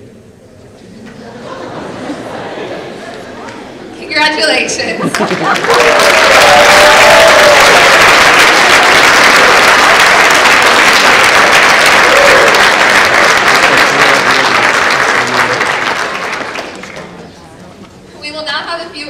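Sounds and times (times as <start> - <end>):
large audience applauding: 5.0 - 17.2.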